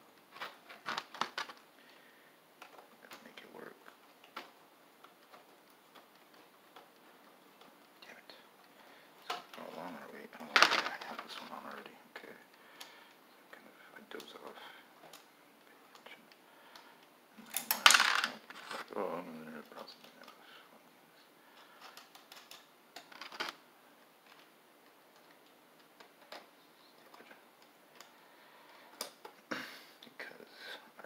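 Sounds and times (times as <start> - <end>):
acrylic panels clicking and tapping: 21.6 - 23.6.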